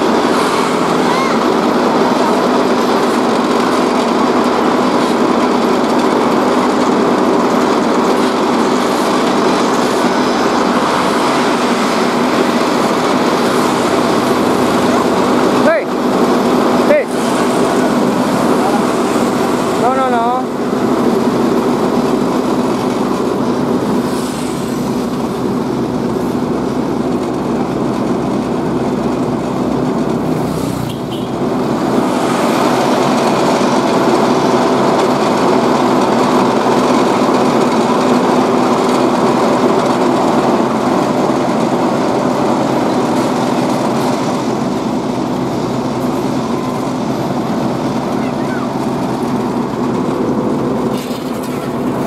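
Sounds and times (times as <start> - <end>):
diesel engine drone: 0.0 - 52.0.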